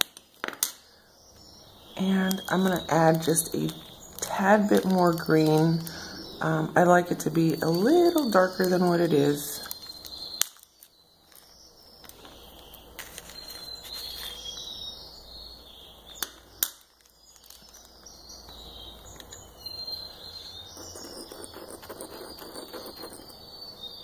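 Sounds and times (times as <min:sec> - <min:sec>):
plastic bag rustling: 0:13.0 - 0:14.5.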